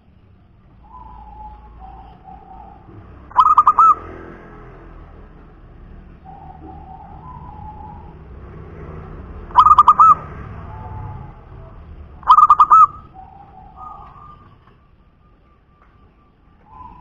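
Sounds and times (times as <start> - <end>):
dove cooing: 0.8 - 4.2, 6.2 - 8.3, 9.2 - 11.6, 12.2 - 14.9.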